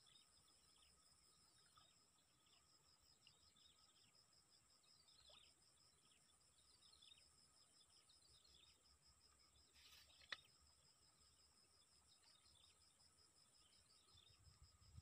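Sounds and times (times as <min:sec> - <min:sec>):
insects chirring: 0:00.0 - 0:15.0
small birds chirping: 0:04.8 - 0:15.0.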